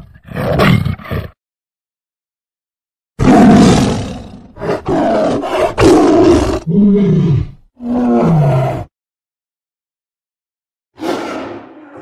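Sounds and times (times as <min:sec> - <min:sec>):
tiger roaring: 0:03.2 - 0:08.9.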